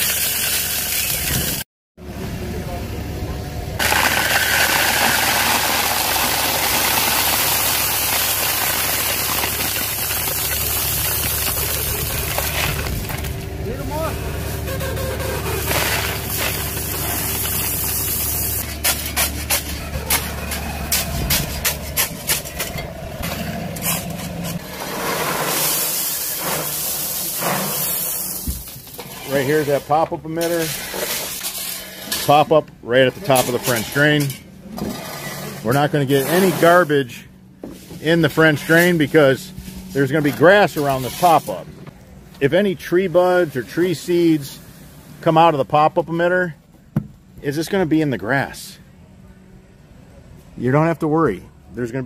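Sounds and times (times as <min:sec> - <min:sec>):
loader engine humming: 0:02.0 - 0:25.4
gravel pouring onto pipe: 0:03.8 - 0:13.2, 0:24.8 - 0:28.4.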